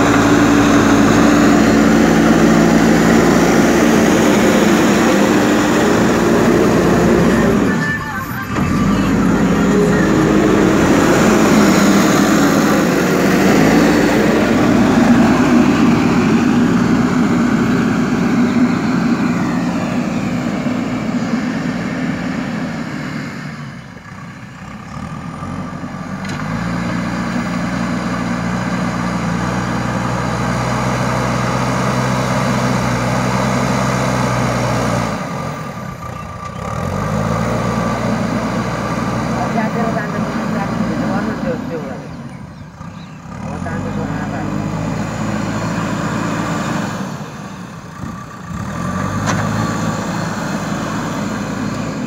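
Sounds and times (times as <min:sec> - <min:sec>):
diesel engine running: 0:00.0 - 0:52.0.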